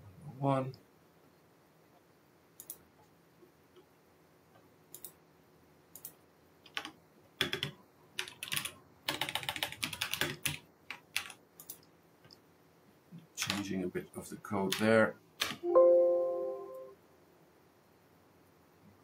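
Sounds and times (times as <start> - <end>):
typing on computer keyboard: 4.9 - 5.2, 6.0 - 11.8, 13.4 - 13.7, 14.7 - 15.6.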